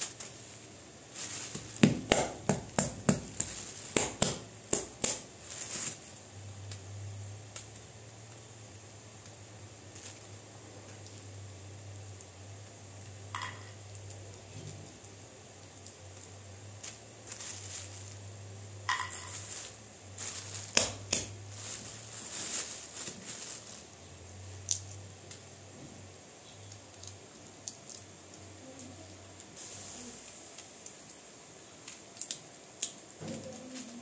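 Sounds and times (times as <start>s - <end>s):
plastic bag crinkling: 18.9s - 24.9s.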